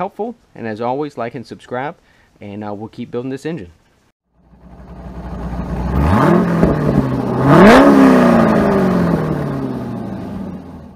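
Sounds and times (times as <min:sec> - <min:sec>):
car engine revving: 0:04.4 - 0:10.9.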